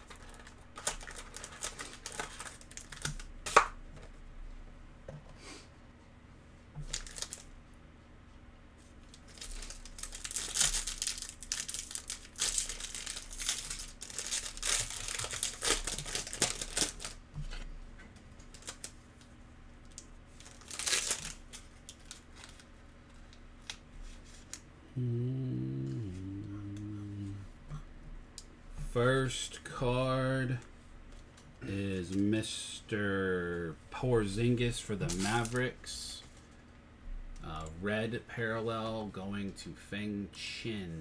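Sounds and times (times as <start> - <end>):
foil wrapper crinkling and tearing: 0.0 - 3.7, 6.8 - 7.5, 9.0 - 17.6, 18.4 - 19.0, 19.8 - 24.6, 34.8 - 35.8
person humming: 24.9 - 27.8.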